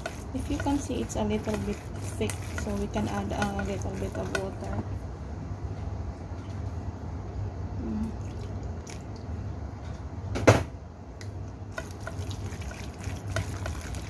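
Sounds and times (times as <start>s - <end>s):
chopsticks stirring in metal bowl: 0.0s - 4.9s, 11.7s - 14.0s.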